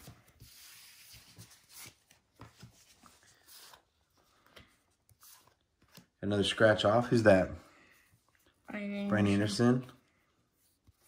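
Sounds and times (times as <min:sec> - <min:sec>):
cards rustling on wooden table: 0:00.0 - 0:06.6.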